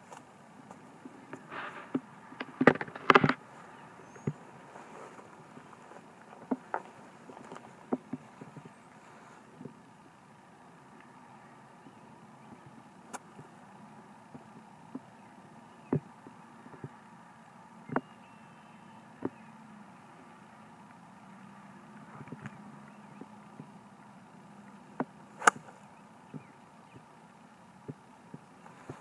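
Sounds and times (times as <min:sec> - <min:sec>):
low steady hum: 0:00.0 - 0:29.0
golf club striking ball: 0:25.4 - 0:25.8.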